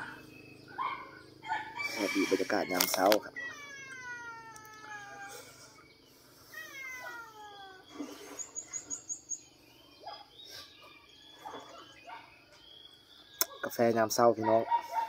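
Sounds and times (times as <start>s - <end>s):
rooster crowing: 1.4s - 3.3s.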